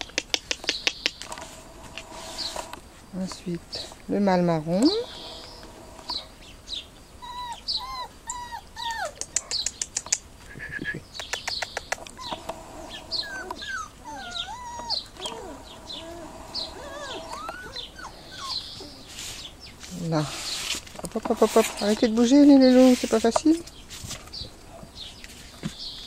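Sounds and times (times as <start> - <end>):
puppies whining and yelping: 7.2 - 9.6, 12.0 - 19.5.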